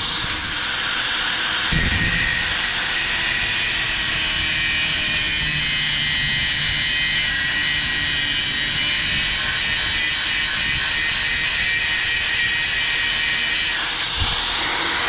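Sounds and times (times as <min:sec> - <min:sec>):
angle grinder cutting metal rod: 0:05.1 - 0:15.0.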